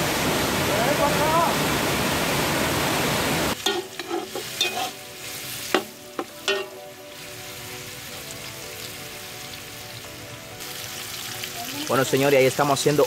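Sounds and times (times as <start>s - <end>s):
waterfall rushing: 0.0s - 3.6s
sausage sizzling in a pot: 3.5s - 13.0s
metal spoon scraping a pot: 3.6s - 5.0s.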